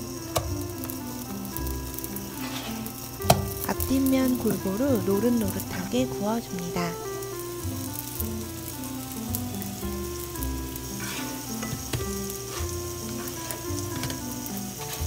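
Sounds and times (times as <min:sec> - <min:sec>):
background music: 0:00.0 - 0:15.0
food sizzling in oil: 0:00.0 - 0:15.0
spatula knocking on pan: 0:02.4 - 0:03.9, 0:11.0 - 0:14.4.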